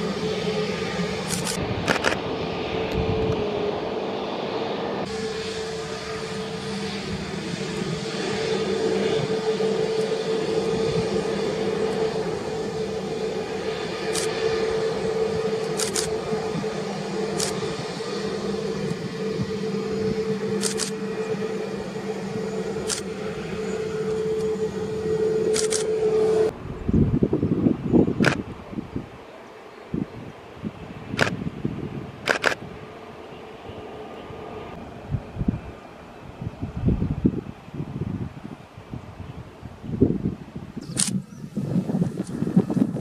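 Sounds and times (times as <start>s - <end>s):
jet engines whining: 0.0s - 43.0s.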